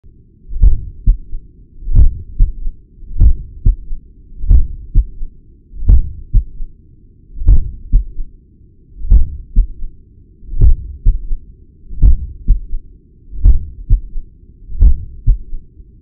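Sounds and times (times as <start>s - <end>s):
heartbeat lub-dub: 0.5s - 6.7s, 7.4s - 8.3s, 9.0s - 9.9s, 10.6s - 12.8s, 13.4s - 15.6s
heart murmur: 0.6s - 5.2s, 5.8s - 6.6s, 7.4s - 8.2s, 9.1s - 9.8s, 10.6s - 11.4s, 12.0s - 12.8s, 13.4s - 14.2s, 14.8s - 15.6s.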